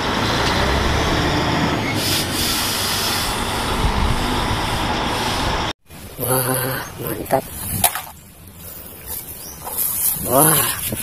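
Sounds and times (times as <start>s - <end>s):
loud rushing noise: 0.0s - 5.7s
truck diesel engine rumbling: 0.0s - 9.6s.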